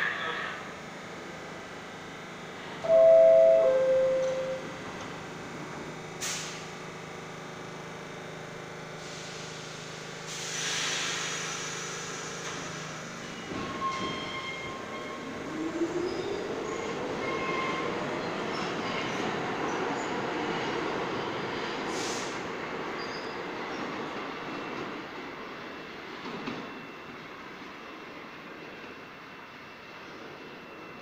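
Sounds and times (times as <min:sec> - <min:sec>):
two-note door chime: 0:02.9 - 0:04.7
air hiss bursts: 0:06.2 - 0:06.6, 0:10.3 - 0:12.9, 0:21.9 - 0:22.4.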